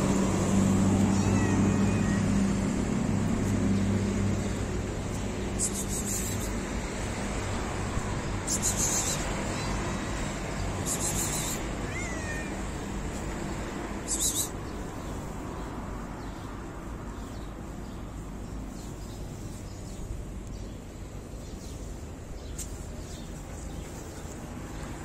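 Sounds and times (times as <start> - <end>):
cat meowing: 1.0 - 2.6, 8.7 - 10.0, 11.0 - 12.9.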